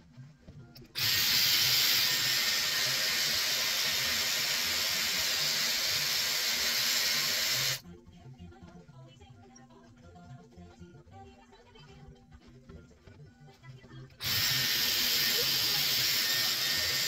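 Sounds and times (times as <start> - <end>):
hair styler blowing air: 1.0 - 7.8, 14.2 - 17.0.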